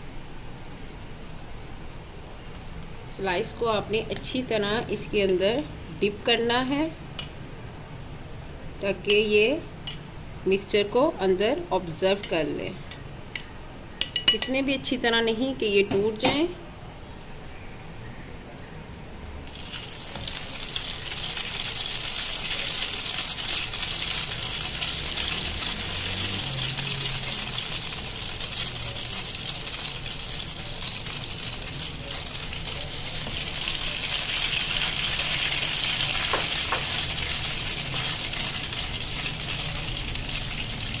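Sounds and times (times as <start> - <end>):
bread sizzling in frying pan: 19.5 - 41.0.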